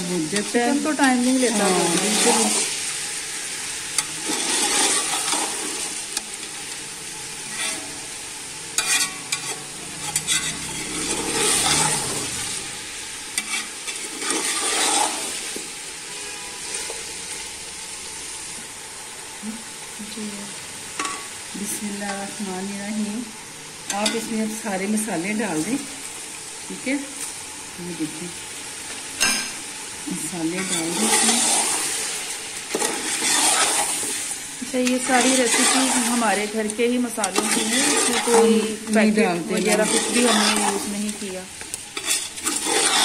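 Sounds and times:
chicken sizzling in a pot: 0.0s - 43.0s
spoon scraping a pot: 4.0s - 5.9s, 7.4s - 8.0s, 8.8s - 12.4s, 13.4s - 15.6s, 16.2s - 17.0s, 30.6s - 41.3s, 41.9s - 43.0s.

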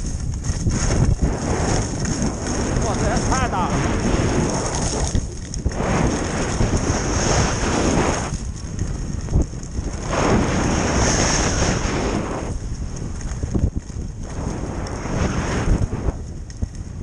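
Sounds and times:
wind buffeting microphone: 0.0s - 17.0s
skis hissing on snow: 0.7s - 8.4s, 9.9s - 12.6s, 14.3s - 16.3s.

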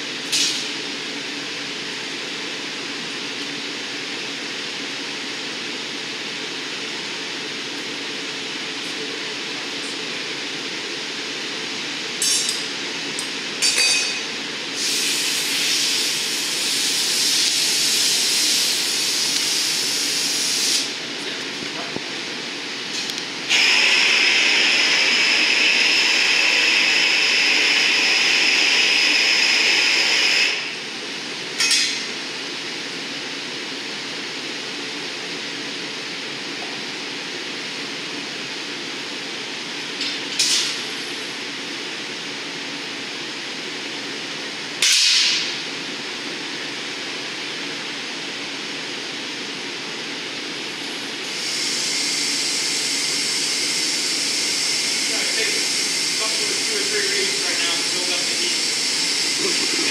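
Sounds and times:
furnace burners rushing: 14.1s - 30.8s, 51.2s - 59.9s
hand torch hissing: 14.7s - 21.0s, 23.4s - 30.9s, 51.1s - 59.9s.

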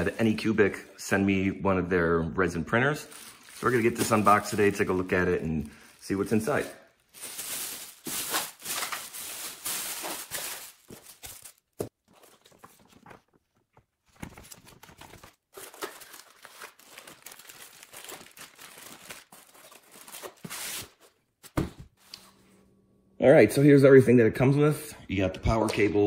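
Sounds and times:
paper sheets rustling: 3.1s - 5.0s, 6.0s - 21.8s
plastic bag crinkling: 3.1s - 13.2s, 14.4s - 20.5s.

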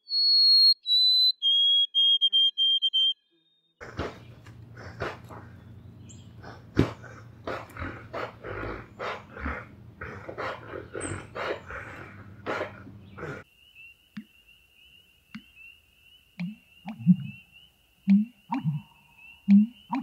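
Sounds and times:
bear huffing: 3.8s - 13.5s
bittern gulping call: 3.8s - 13.5s, 16.4s - 17.4s, 18.1s - 20.0s.

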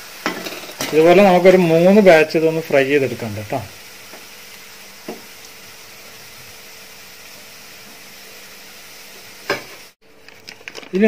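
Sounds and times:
onions frying in hot oil: 0.0s - 11.0s.

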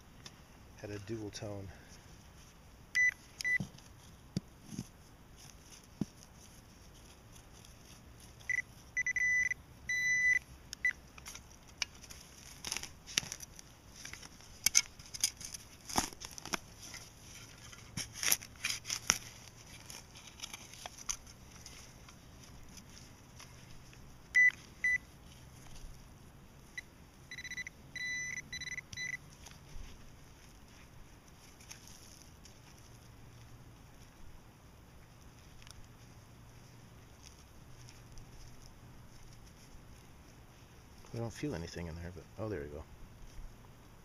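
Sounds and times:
pinpointer beeping: 3.0s - 3.6s, 8.4s - 11.0s, 24.3s - 25.0s, 26.8s - 29.2s.

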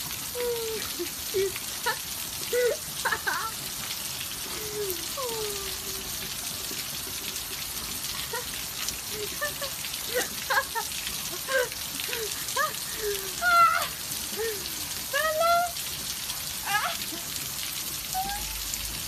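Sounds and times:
rain on pavement: 0.0s - 19.0s
dog yipping and whining: 18.1s - 18.6s.

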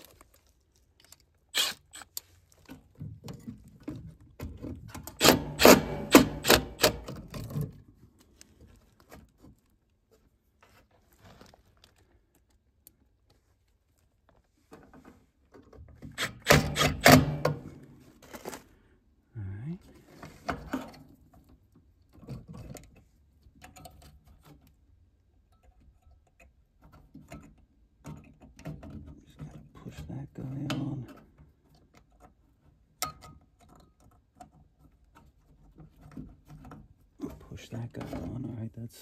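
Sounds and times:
handheld power tool running: 1.6s - 1.8s.

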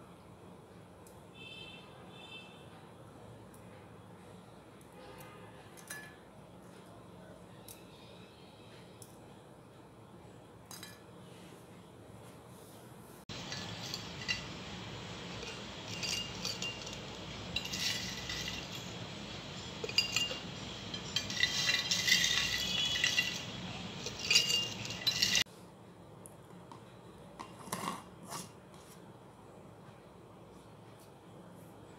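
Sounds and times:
cookies rattling in glass jar: 13.3s - 25.4s
spoon clinking against glass jar: 13.3s - 25.4s.

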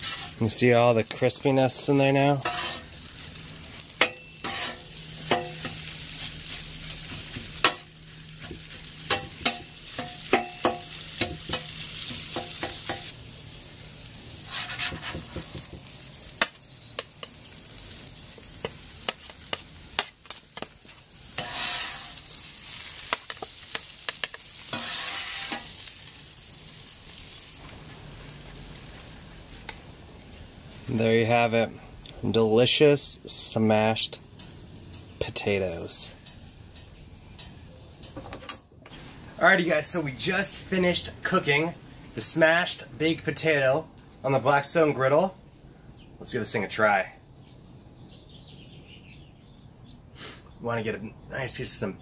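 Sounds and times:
metal spatula scraping griddle: 0.0s - 0.6s, 1.8s - 3.0s, 4.0s - 7.8s, 14.4s - 15.6s, 20.6s - 26.0s
food sizzling: 0.0s - 31.1s.

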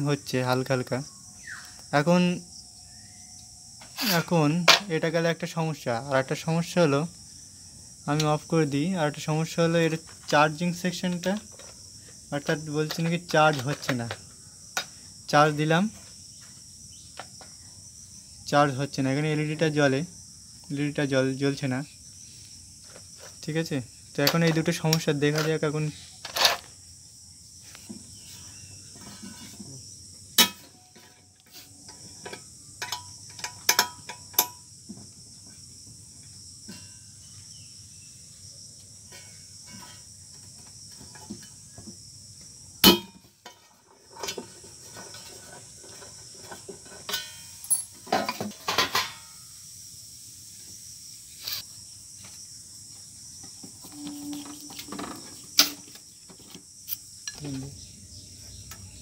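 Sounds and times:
high-pitched hiss: 0.0s - 59.0s
clicks and metallic knocks: 12.4s - 14.2s, 24.2s - 26.7s, 30.4s - 34.7s, 42.8s - 49.3s, 53.4s - 57.5s.

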